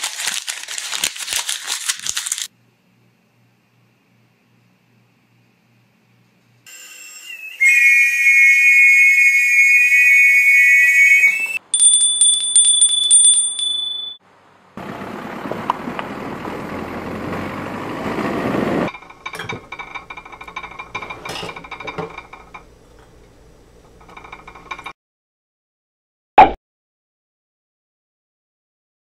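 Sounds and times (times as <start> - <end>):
high whistling whir: 6.7 - 11.6
small brass bell ringing: 11.7 - 14.2
dishes clinking: 18.9 - 24.9.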